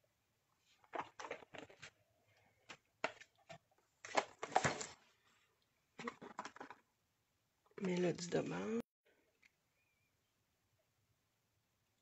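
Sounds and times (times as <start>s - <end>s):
craft supplies clicking and knocking: 6.0s - 6.9s.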